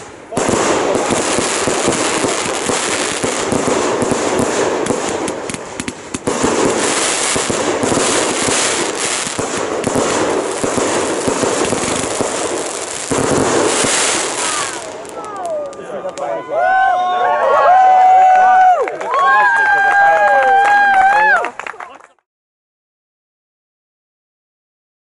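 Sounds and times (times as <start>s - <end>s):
fireworks crackling and popping: 0.0s - 16.4s.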